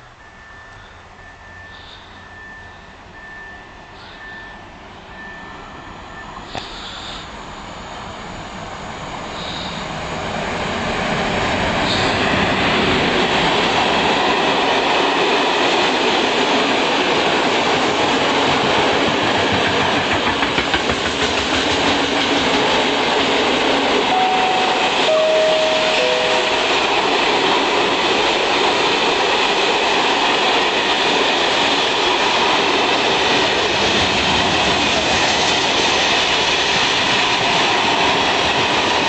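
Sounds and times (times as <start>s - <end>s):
electric locomotive passing: 0.0s - 39.0s.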